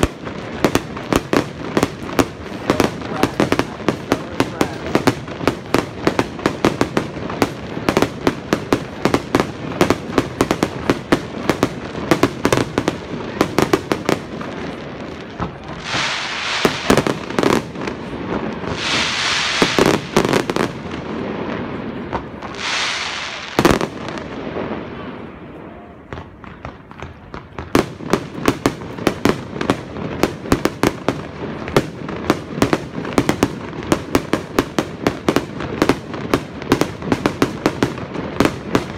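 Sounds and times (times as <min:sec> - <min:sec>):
hissing crackle: 0:15.5 - 0:21.3.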